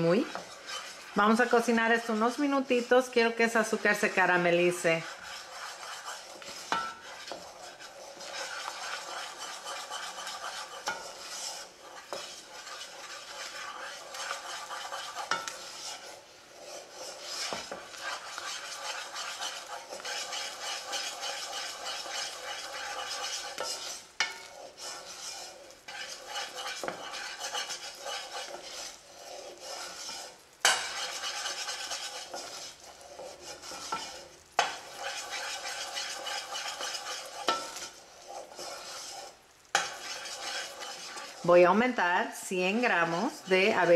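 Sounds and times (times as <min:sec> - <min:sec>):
syrup bubbling and sizzling: 0:00.0 - 0:43.9
wooden spoon scraping saucepan: 0:00.0 - 0:43.9.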